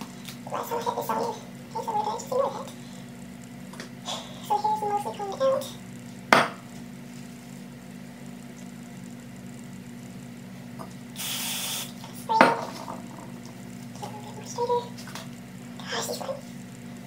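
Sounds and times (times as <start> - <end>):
spray bottle hiss: 11.2 - 12.0.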